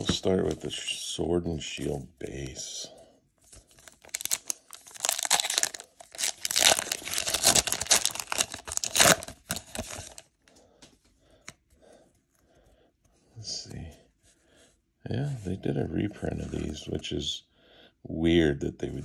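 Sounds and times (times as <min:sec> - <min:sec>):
cards being handled: 0:00.0 - 0:00.9, 0:03.4 - 0:11.7
foil wrapper crinkling and ripping: 0:03.6 - 0:10.3.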